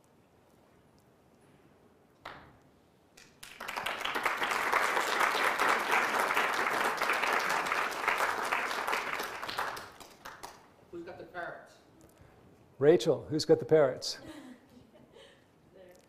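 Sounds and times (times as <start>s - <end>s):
audience applauding: 3.2s - 10.6s.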